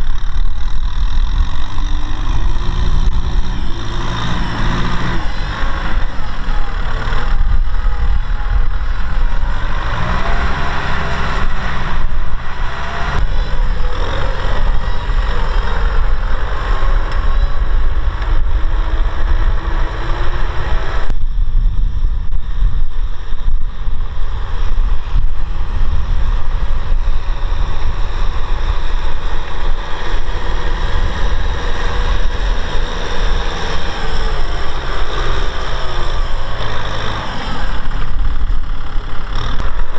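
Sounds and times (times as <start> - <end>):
tractor diesel engine under load: 0.0 - 39.9.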